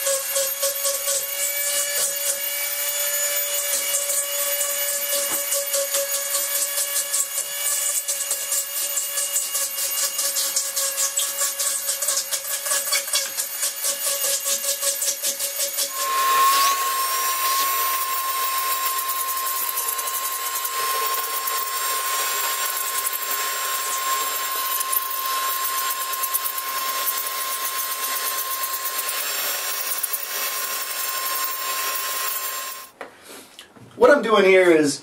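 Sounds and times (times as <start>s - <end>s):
power tool rasping into foam: 0.0s - 33.0s
vacuum cleaner whining: 15.8s - 33.0s.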